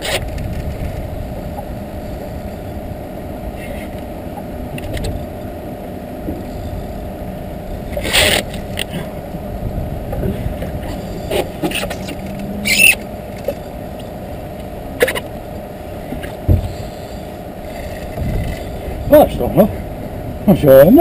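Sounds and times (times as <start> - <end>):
boat motor running: 0.0 - 21.0.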